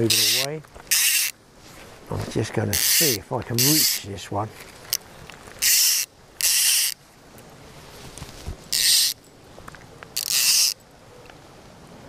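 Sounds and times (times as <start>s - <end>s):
fishing reel ratchet buzzing: 0.1s - 1.3s, 2.8s - 4.0s, 5.6s - 7.0s, 8.7s - 9.2s, 10.2s - 10.8s.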